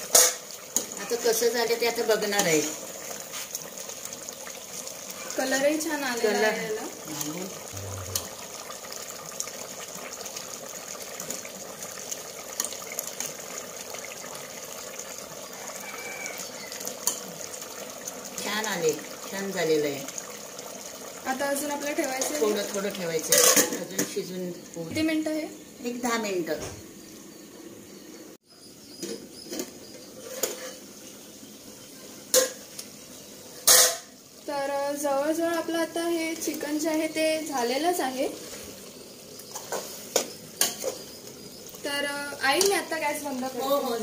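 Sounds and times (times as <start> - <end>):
curry simmering in a pot: 0.0 - 44.0
metal pot lid clinking: 23.2 - 24.1, 33.6 - 34.1.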